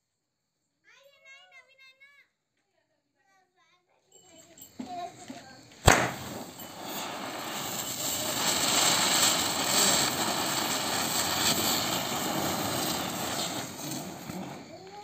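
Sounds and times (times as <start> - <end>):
spinner firework hissing whoosh: 5.1 - 15.0.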